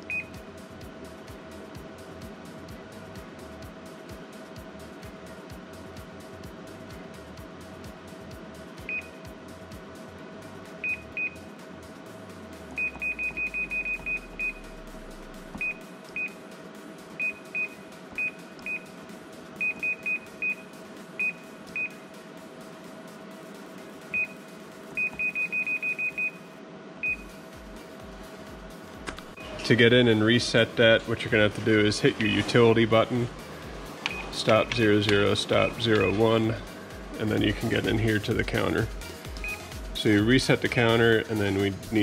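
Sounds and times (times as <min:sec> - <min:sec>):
steady machine hum: 0:00.0 - 0:42.0
short high beeps: 0:34.1 - 0:34.4.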